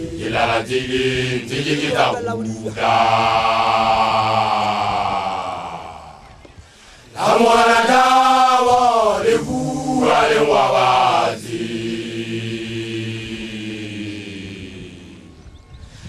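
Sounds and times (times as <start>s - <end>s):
man chanting lead line: 0.0s - 6.3s
low male chorus drone: 0.0s - 16.0s.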